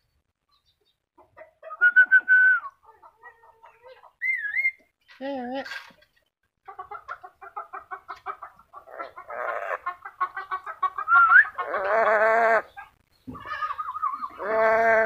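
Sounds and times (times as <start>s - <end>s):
parrot calling: 4.2s - 4.8s.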